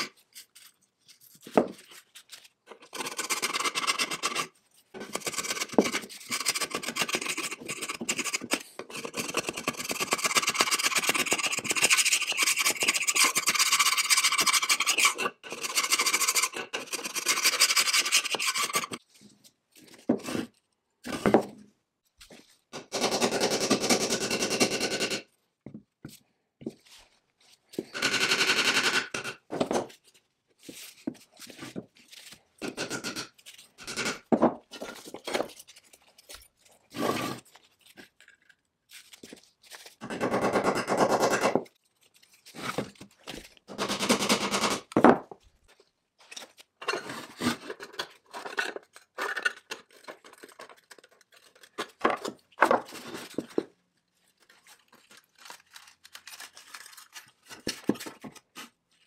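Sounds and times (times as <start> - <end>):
hand tools clicking and scraping metal: 0.0 - 19.0, 30.9 - 38.6, 46.3 - 53.7.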